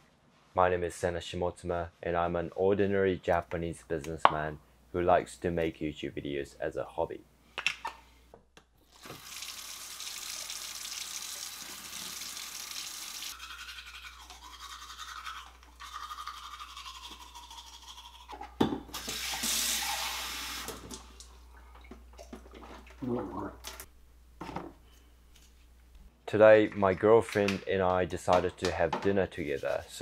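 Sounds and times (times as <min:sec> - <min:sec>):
tap water running into basin: 0:08.9 - 0:13.4, 0:18.9 - 0:21.1
water filling a cup: 0:08.9 - 0:13.9, 0:19.0 - 0:20.8
toothbrush scrubbing teeth: 0:13.3 - 0:18.6.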